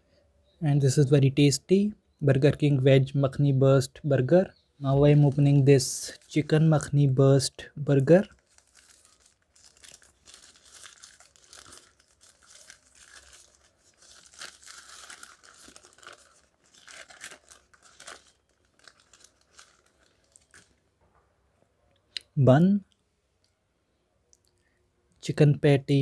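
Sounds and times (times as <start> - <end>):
paper wrapper rustling and crackling: 8.2 - 20.8.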